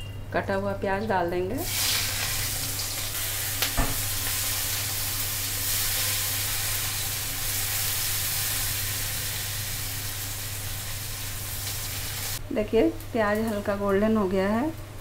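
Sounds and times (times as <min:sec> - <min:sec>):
onions sizzling in hot oil: 0:01.6 - 0:12.4.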